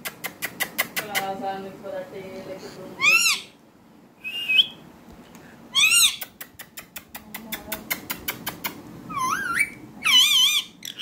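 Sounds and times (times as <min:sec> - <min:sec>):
parakeet chirping and squawking: 0:03.0 - 0:03.6, 0:05.7 - 0:06.2, 0:09.1 - 0:11.0
parakeet warbling: 0:03.0 - 0:03.6, 0:05.7 - 0:06.2, 0:09.1 - 0:11.0.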